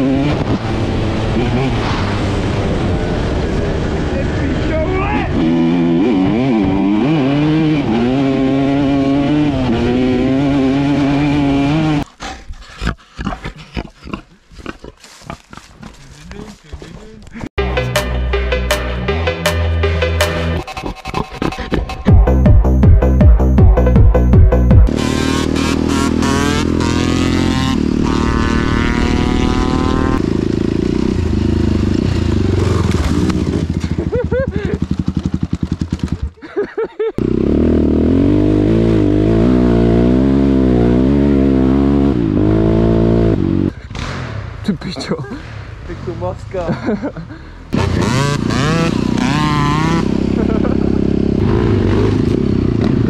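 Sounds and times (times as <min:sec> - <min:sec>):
dirt bike engine revving: 0:00.0 - 0:12.0, 0:22.0 - 0:36.4, 0:37.2 - 0:44.4, 0:47.7 - 0:53.0
pig grunting: 0:12.0 - 0:17.2.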